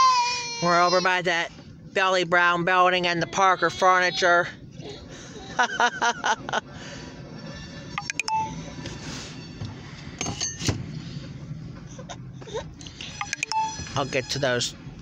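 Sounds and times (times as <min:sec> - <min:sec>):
low car hum: 0:00.0 - 0:15.0
chime-like tones: 0:07.9 - 0:08.6.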